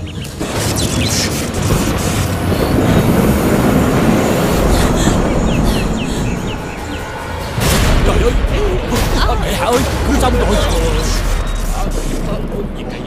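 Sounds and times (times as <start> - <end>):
loud rumbling roar: 2.3 - 12.8.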